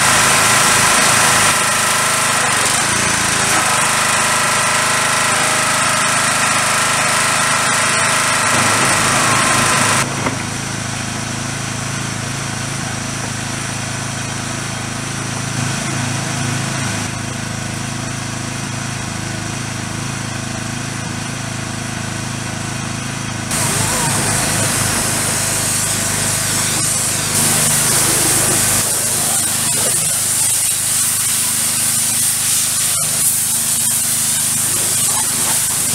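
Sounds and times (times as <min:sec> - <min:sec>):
pressure washer running: 0:00.0 - 0:35.9
spray hissing: 0:23.5 - 0:35.9.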